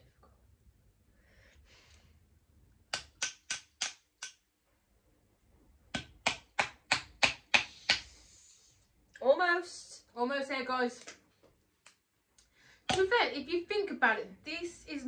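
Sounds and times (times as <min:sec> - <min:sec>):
faint hiss: 0:07.6 - 0:09.2.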